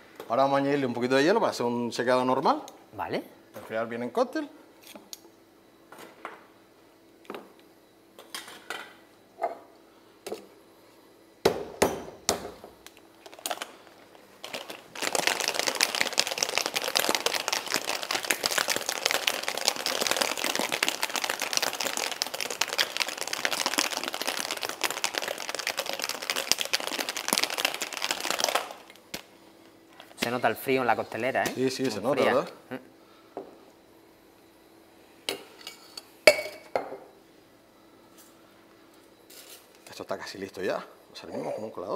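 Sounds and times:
ice rattling in shaken shaker: 0:14.4 - 0:29.0
ice clinking into metal shaker: 0:14.5 - 0:28.8.

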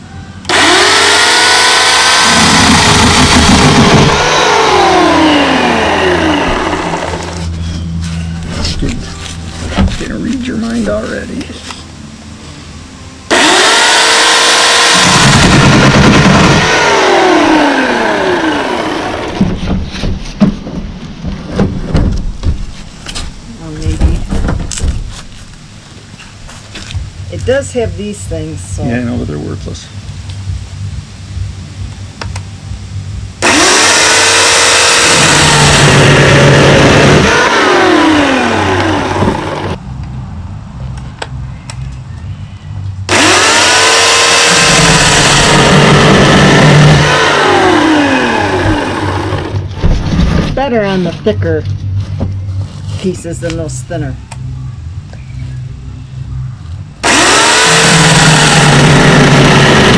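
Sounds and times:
electric chainsaw cutting log: 0:00.5 - 0:07.5, 0:13.3 - 0:19.6, 0:33.4 - 0:39.8, 0:43.1 - 0:49.6, 0:57.0 - 0:59.9
logs knocking: 0:02.5 - 0:04.3, 0:19.3 - 0:25.4.

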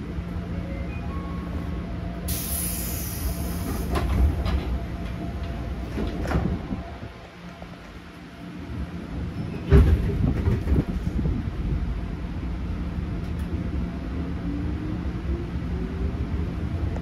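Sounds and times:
train low hum: 0:00.0 - 0:17.0
air hiss of door: 0:02.3 - 0:04.1.

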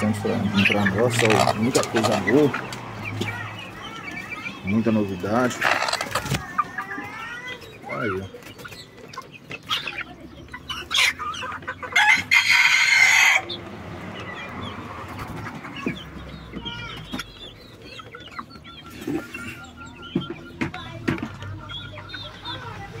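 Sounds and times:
young chickens clucking and peeping: 0:00.0 - 0:23.0
rooster crowing: 0:12.0 - 0:13.5.

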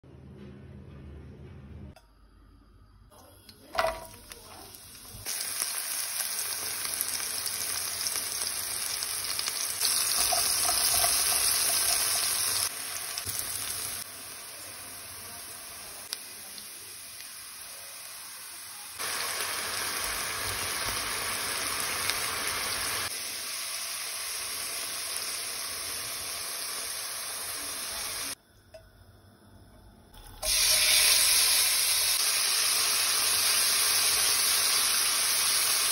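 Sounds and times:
food sizzling in frying pan: 0:03.7 - 0:28.4, 0:30.2 - 0:35.9.

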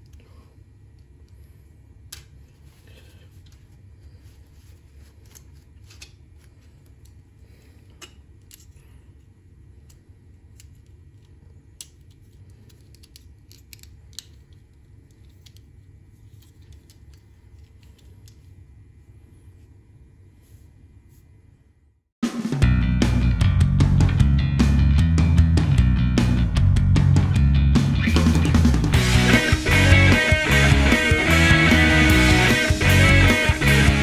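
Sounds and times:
plastic parts clicking: 0:11.8 - 0:15.7.

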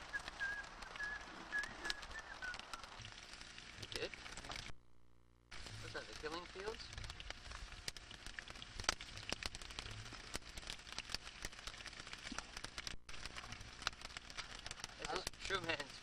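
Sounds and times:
potatoes sizzling in oil: 0:05.5 - 0:16.0.

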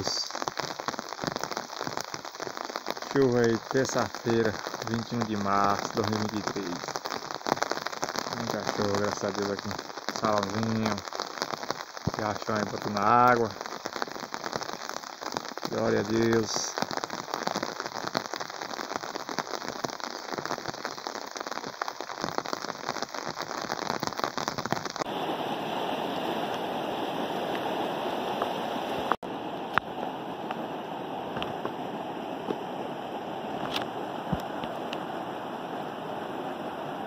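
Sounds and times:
rain pattering on creek: 0:00.0 - 0:37.0
river rushing over rocks: 0:25.1 - 0:37.0.

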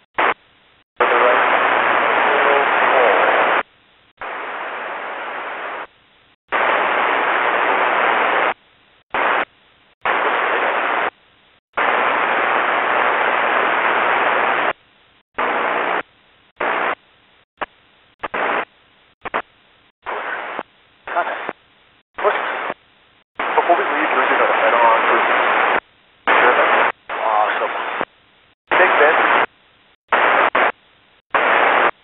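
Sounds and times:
radio scanner static bursts: 0:00.0 - 0:11.2, 0:11.8 - 0:14.8, 0:15.4 - 0:21.6, 0:22.2 - 0:32.0.

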